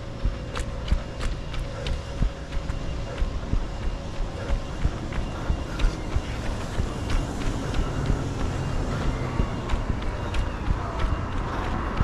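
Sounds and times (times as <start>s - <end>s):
road traffic: 5.0s - 12.0s.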